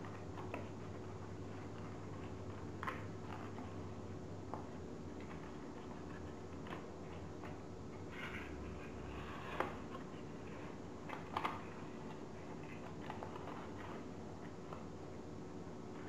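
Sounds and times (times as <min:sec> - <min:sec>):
faint steady hum: 0:00.0 - 0:16.0
paper rustling and crinkling: 0:04.6 - 0:14.9.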